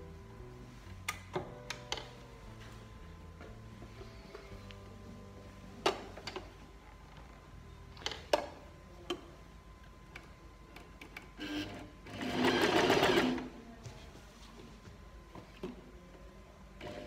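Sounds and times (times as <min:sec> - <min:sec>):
sewing machine stitching: 0:11.4 - 0:13.5.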